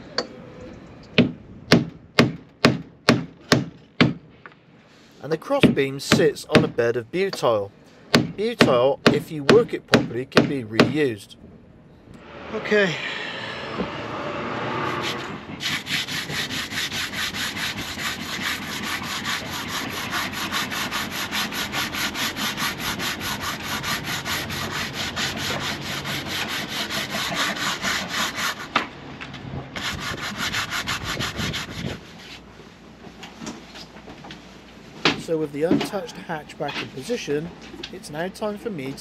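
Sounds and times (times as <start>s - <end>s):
board being sanded by hand: 14.9s - 28.7s, 29.8s - 32.4s.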